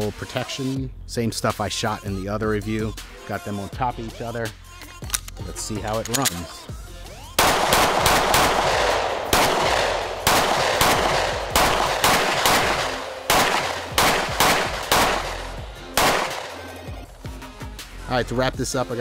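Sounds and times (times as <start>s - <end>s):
pistol shots: 7.4s - 16.9s.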